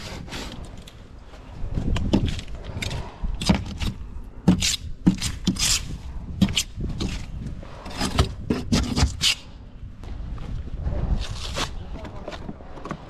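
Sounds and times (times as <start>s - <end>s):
hand scraper scraping: 2.3s - 9.5s.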